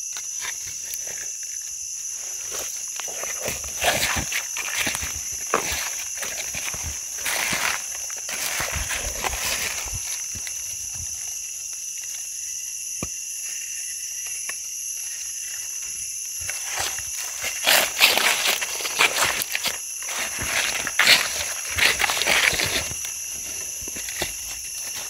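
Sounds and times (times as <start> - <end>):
footsteps crunching through dry leaves: 2.1 - 11.5, 16.3 - 25.0.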